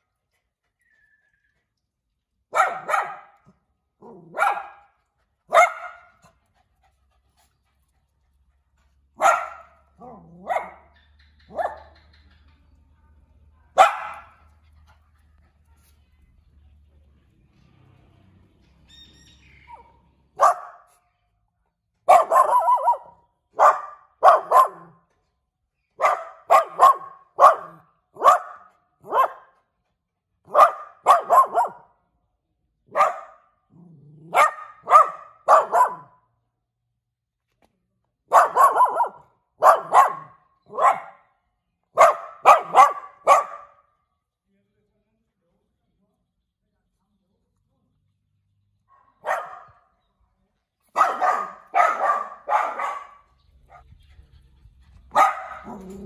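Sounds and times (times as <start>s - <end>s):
small dog barking: 2.5s - 6.2s, 9.2s - 12.0s, 13.7s - 14.4s, 19.7s - 21.0s, 22.1s - 25.1s, 26.0s - 29.6s, 30.5s - 32.0s, 32.9s - 33.5s, 34.2s - 36.3s, 38.3s - 41.3s, 42.0s - 43.9s, 48.9s - 49.9s, 50.9s - 53.9s, 55.1s - 56.0s.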